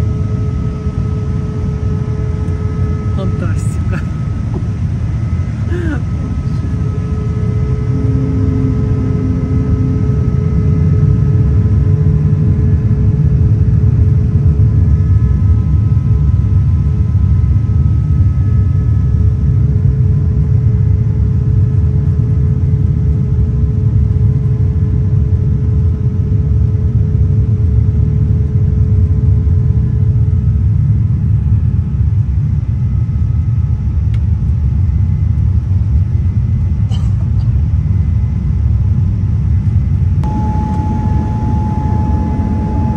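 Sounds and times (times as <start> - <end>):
aircraft cabin rumble: 0.0 - 42.9
faint steady tones: 40.2 - 42.9.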